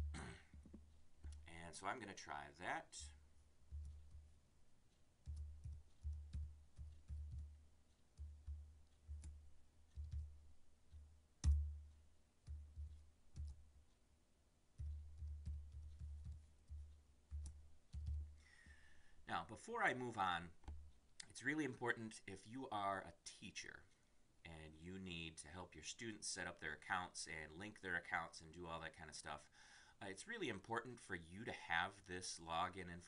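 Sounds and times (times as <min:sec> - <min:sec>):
computer keyboard typing: 0:05.2 - 0:10.3, 0:12.4 - 0:13.6, 0:14.8 - 0:18.3.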